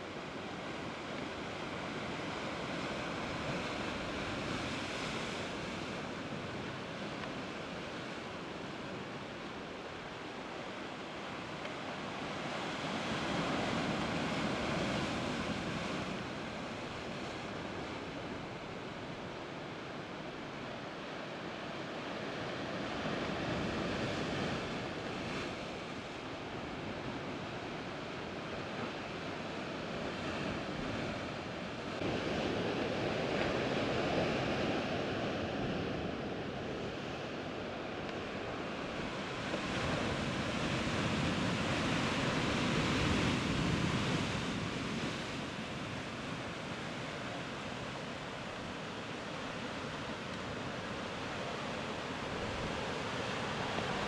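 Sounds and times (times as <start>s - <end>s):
surf washing against rocks: 37.8s - 54.0s.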